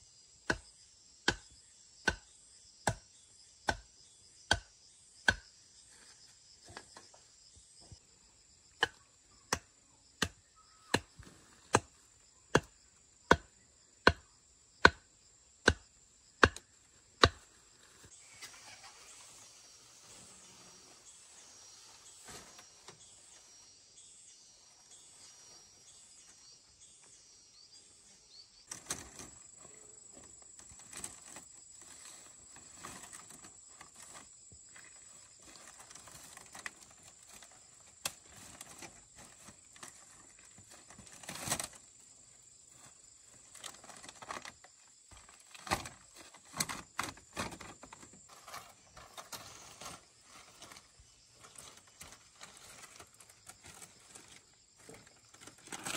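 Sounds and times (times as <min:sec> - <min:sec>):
faint high chirping: 0:01.6 - 0:11.6, 0:17.8 - 0:30.2
high-pitched insect drone: 0:18.1 - 0:28.6.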